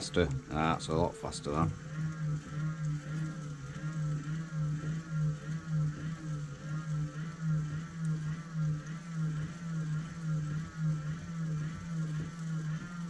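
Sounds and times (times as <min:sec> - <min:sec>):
hand-cranked motor whirring: 0:00.0 - 0:13.0.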